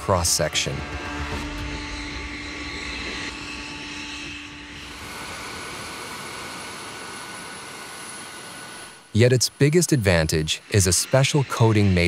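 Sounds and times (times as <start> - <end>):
jet engine whine: 0.0 - 12.0
steady jet hiss: 4.8 - 12.0.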